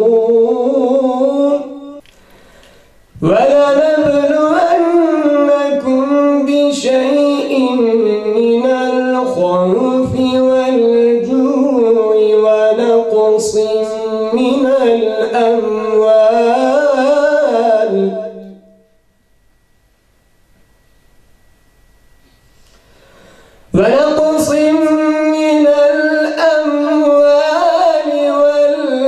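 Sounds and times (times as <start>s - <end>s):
man reciting melodically: 0.0s - 2.0s, 3.2s - 18.8s, 23.7s - 29.0s.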